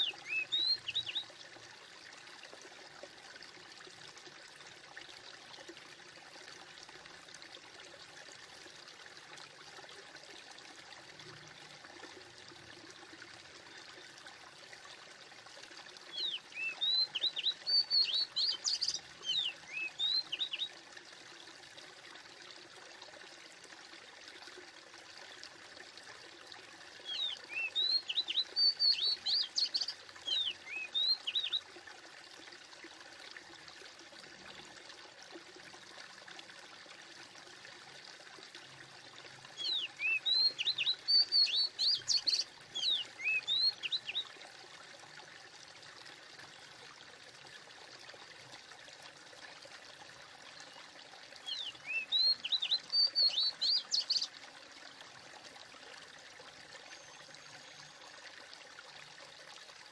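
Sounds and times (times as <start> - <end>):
songbird chirping: 0.0 - 1.3, 16.1 - 20.7, 27.1 - 31.6, 39.6 - 44.2, 51.4 - 54.3
running water: 0.0 - 59.9.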